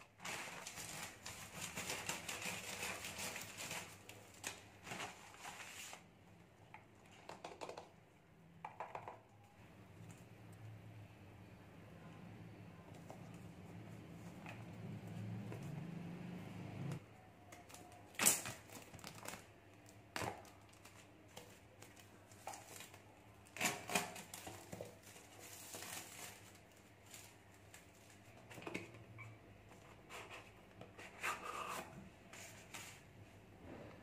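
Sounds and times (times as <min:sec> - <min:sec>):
plastic shrink-wrap tearing: 0:00.1 - 0:06.0, 0:17.6 - 0:21.2, 0:21.8 - 0:28.2.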